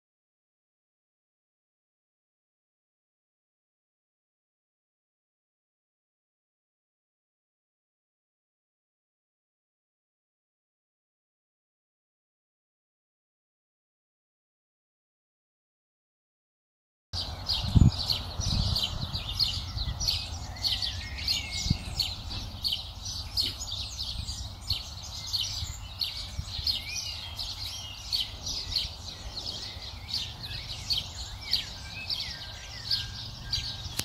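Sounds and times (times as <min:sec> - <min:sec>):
small birds chirping: 0:17.2 - 0:34.0.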